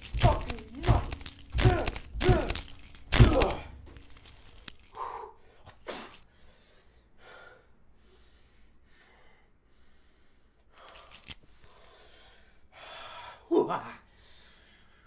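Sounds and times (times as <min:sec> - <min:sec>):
man breathing hard and gasping: 0:04.8 - 0:13.5, 0:14.1 - 0:15.0.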